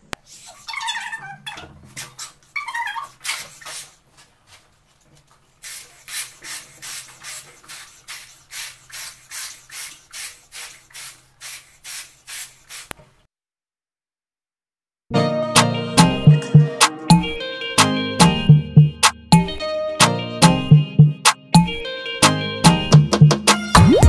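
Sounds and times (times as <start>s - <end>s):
balloon blown up by mouth: 23.7s - 24.0s.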